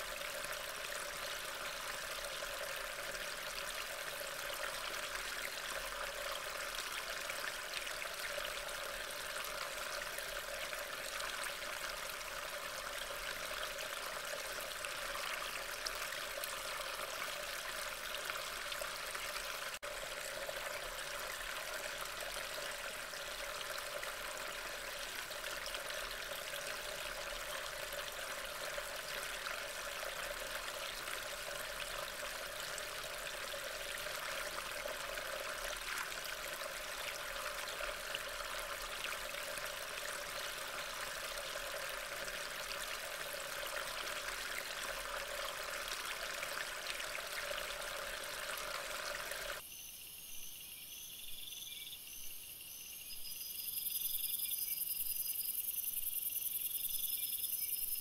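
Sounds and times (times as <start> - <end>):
crickets chirping: 49.6 - 58.0.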